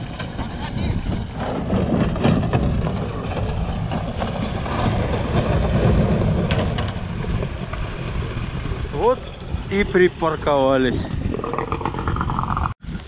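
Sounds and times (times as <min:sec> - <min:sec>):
ice knocking and scraping on hull: 0:00.0 - 0:09.2.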